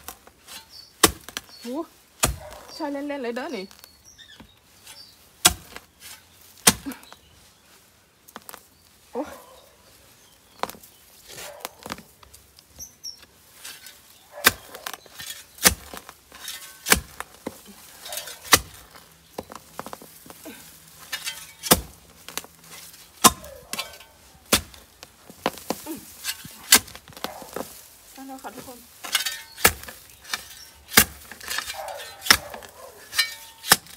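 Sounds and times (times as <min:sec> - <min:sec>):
spade chopping into soil: 0:00.0 - 0:01.6, 0:02.2 - 0:02.8, 0:04.4 - 0:07.2, 0:13.6 - 0:27.8, 0:29.0 - 0:33.9.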